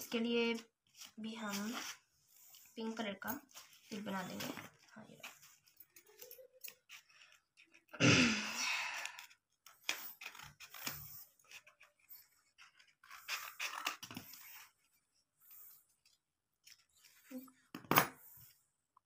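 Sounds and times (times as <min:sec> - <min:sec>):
scissors snipping paper: 0:03.4 - 0:08.0, 0:09.0 - 0:14.8.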